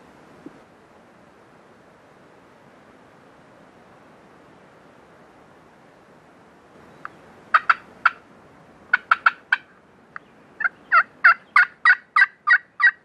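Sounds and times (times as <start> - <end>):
turkey yelping: 7.5 - 8.2, 8.9 - 9.7, 10.6 - 13.0.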